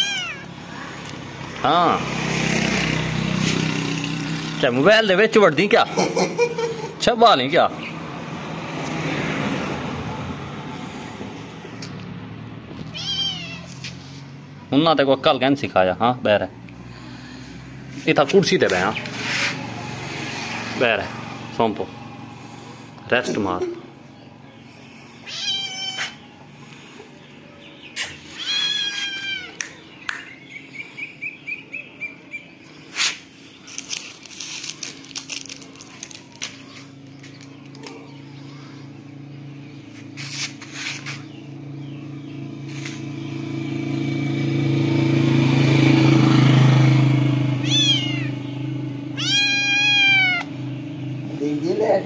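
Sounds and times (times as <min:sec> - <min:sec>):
kitten meowing: 0:00.0 - 0:00.6, 0:12.9 - 0:13.8, 0:25.2 - 0:26.2, 0:28.3 - 0:29.6, 0:47.6 - 0:48.4, 0:49.1 - 0:50.5.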